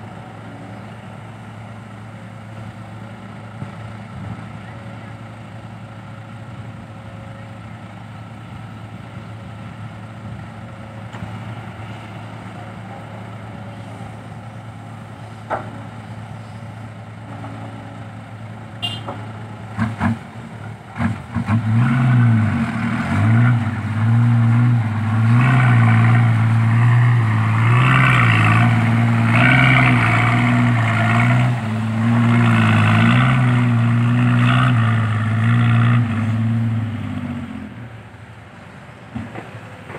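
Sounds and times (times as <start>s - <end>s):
diesel engines idling: 0.0s - 21.3s, 22.3s - 39.9s
truck diesel engine revving: 19.6s - 38.1s.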